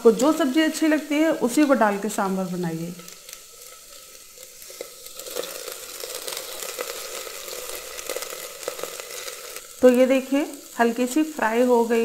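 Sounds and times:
okra sizzling in hot oil: 0:00.0 - 0:12.0
spatula stirring: 0:02.9 - 0:09.6.

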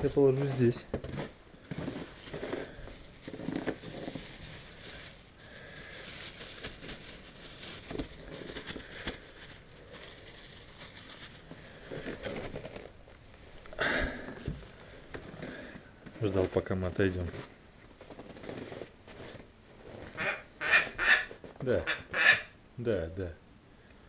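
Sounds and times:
plastic bag crinkling: 0:00.1 - 0:13.7.

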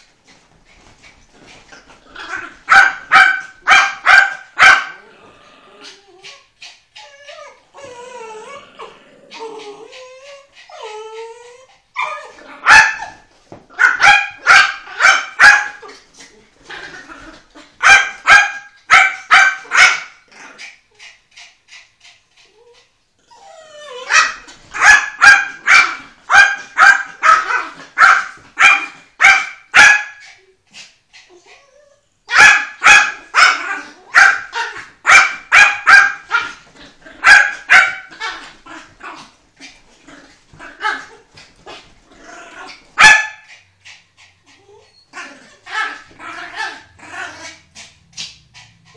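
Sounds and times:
dogs barking: 0:02.6 - 0:05.0, 0:12.6 - 0:13.2, 0:13.8 - 0:15.8, 0:17.8 - 0:20.2, 0:24.1 - 0:30.2, 0:32.3 - 0:36.6, 0:37.2 - 0:38.4, 0:43.0 - 0:43.5
dog whining: 0:07.0 - 0:12.6, 0:22.6 - 0:24.9, 0:31.3 - 0:32.1, 0:44.5 - 0:47.6.

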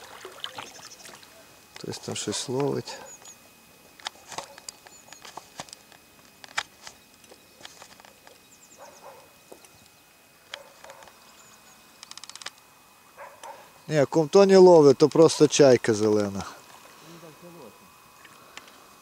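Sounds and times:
small birds chirping: 0:00.5 - 0:03.5, 0:06.9 - 0:12.2.

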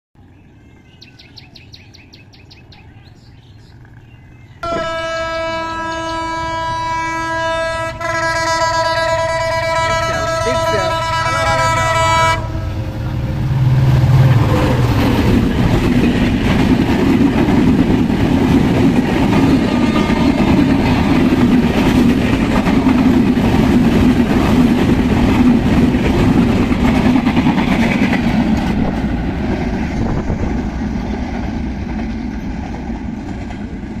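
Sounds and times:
train horn: 0:04.6 - 0:12.9, 0:19.3 - 0:21.6
train wheels clattering on rail: 0:13.0 - 0:34.0.

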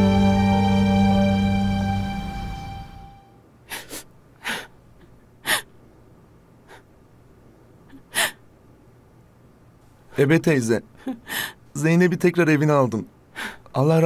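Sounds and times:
background music: 0:00.0 - 0:03.3
person sniffling while crying: 0:03.7 - 0:04.8, 0:05.4 - 0:05.8, 0:07.9 - 0:08.4.

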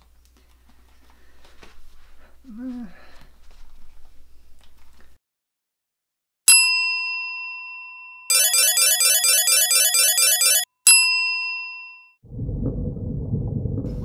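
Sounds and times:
bell ding: 0:06.5 - 0:08.8, 0:10.2 - 0:12.2.

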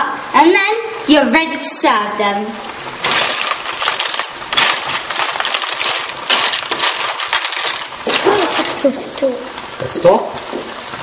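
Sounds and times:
snail shells clattering in a pan: 0:03.0 - 0:09.2.

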